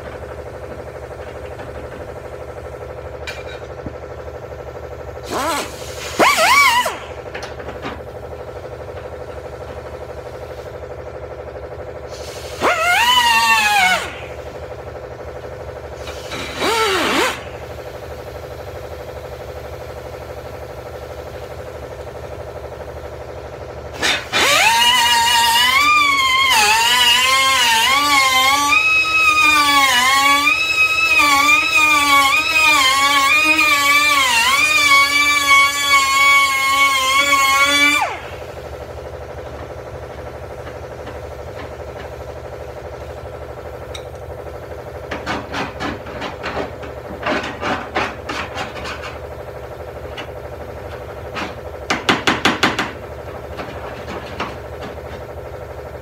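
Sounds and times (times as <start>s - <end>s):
pneumatic cutoff tool whining: 5.2s - 8.5s, 12.1s - 18.4s, 23.9s - 42.3s.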